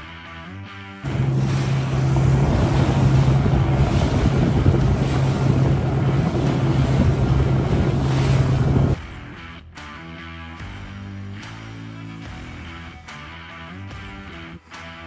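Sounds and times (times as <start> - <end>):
motorboat engine drone: 1.0 - 9.0
water rushing: 1.1 - 9.0
wind noise on microphone: 1.1 - 9.0.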